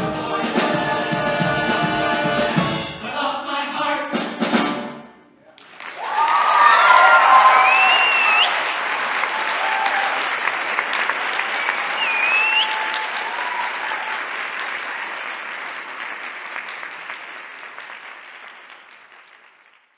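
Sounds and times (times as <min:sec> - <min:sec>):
audience applauding: 0:05.5 - 0:19.9
high cheer: 0:05.6 - 0:15.8.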